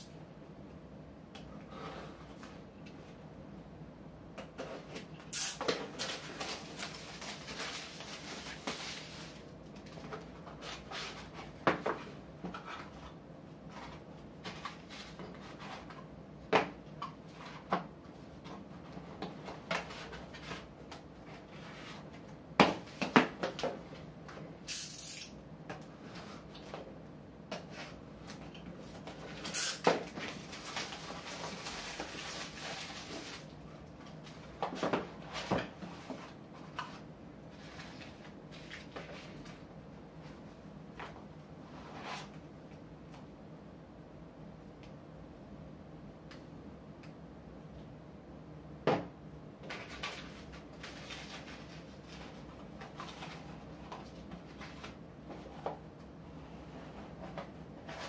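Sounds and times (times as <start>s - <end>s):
cardboard and tape rustling: 4.6s - 16.0s, 27.6s - 39.6s, 49.6s - 55.8s.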